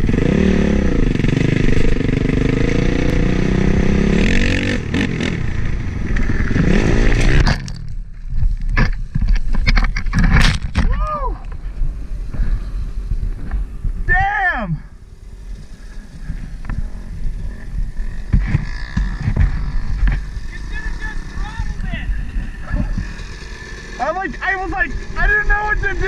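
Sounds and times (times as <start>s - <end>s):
dirt bike engine revving: 0.0s - 7.7s, 14.9s - 26.0s
wind on microphone: 8.3s - 14.2s, 21.3s - 23.2s.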